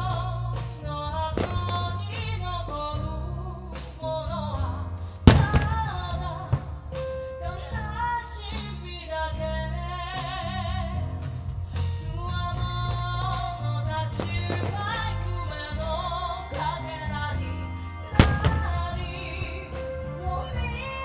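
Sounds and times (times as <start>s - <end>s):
song with singing voice: 0.0s - 21.0s
fireworks bursting: 1.3s - 2.8s, 5.2s - 8.2s, 12.5s - 21.0s.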